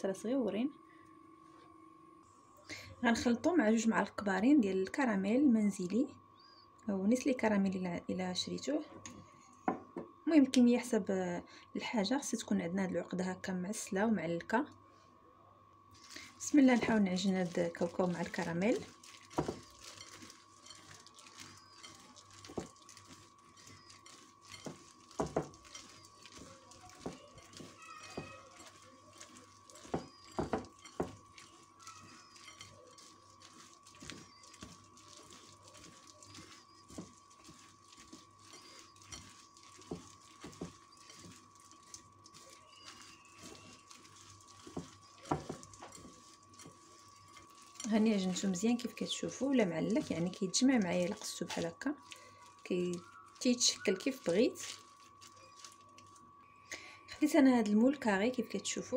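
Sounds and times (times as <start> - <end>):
faint high hum: 0.0 - 58.9
faint steady whine: 0.0 - 58.9
gritty rustling of peanut crumbs: 15.9 - 58.1.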